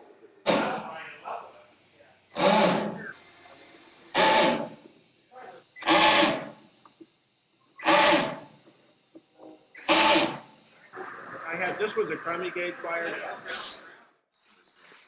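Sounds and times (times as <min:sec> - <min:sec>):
cordless drill running: 0:02.3 - 0:04.9, 0:05.8 - 0:06.8, 0:07.8 - 0:08.6, 0:09.8 - 0:10.6.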